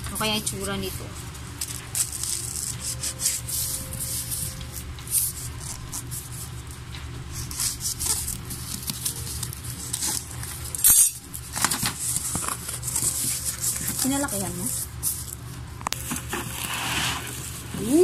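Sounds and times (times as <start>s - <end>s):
knife scraping tape and cardboard: 1.6s - 4.5s.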